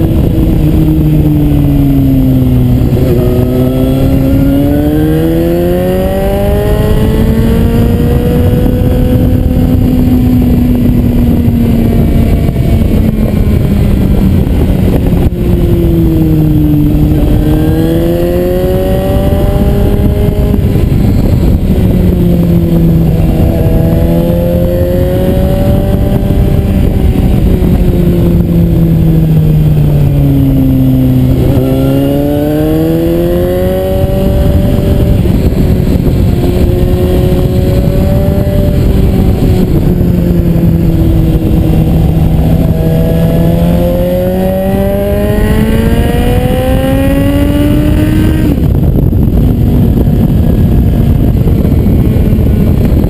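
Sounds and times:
motorcycle engine: 0.0 - 53.0
wind rush: 0.0 - 53.0.

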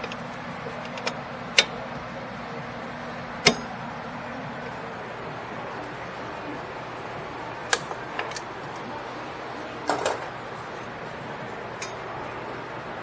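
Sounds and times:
metal brake hardware clicking: 0.8 - 1.8.

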